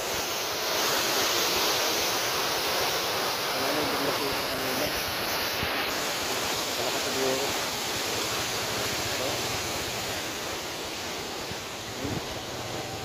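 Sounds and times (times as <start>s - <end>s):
heavy surf against seawall: 0.0s - 13.0s
wind buffeting microphone: 11.4s - 13.0s.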